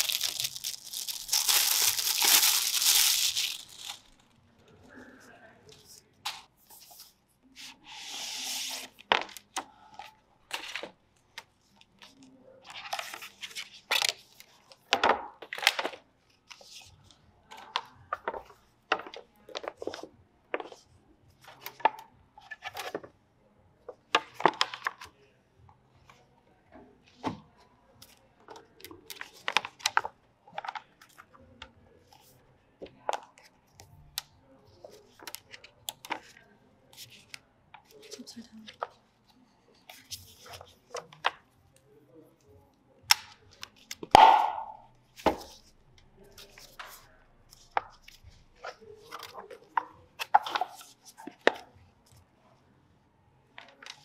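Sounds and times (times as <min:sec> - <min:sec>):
packaging rustling: 0:00.0 - 0:04.3.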